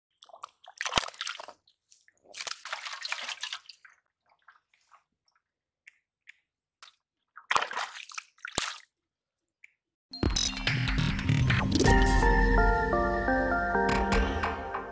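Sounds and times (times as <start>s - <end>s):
hand squelching through mud and water: 0.1s - 9.8s
music: 10.2s - 14.9s.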